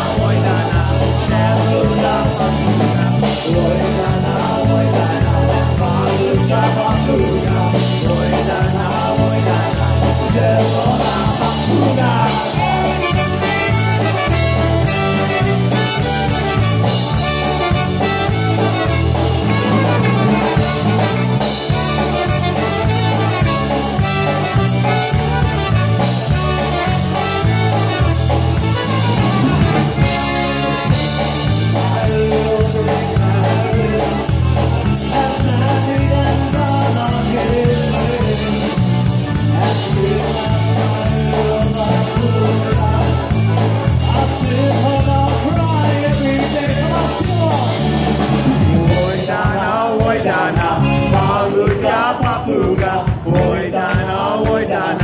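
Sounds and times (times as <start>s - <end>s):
accordion: 0.0s - 55.0s
drum kit: 0.0s - 55.0s
polka band playing: 0.0s - 55.0s
trumpet: 11.6s - 32.2s.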